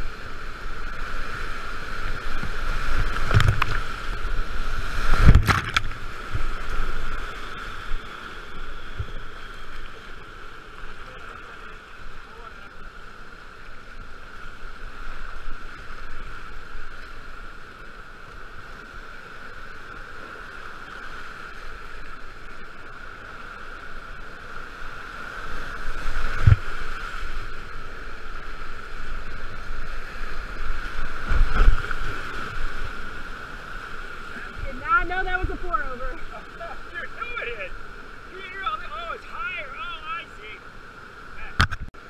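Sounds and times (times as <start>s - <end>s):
whitewater rushing: 20.2s - 41.8s.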